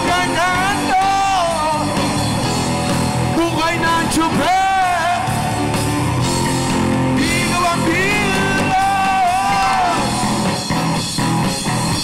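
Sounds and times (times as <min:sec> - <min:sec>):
man singing long notes: 0:00.0 - 0:02.0, 0:03.4 - 0:05.5, 0:07.1 - 0:10.3
live rock band: 0:00.0 - 0:12.0.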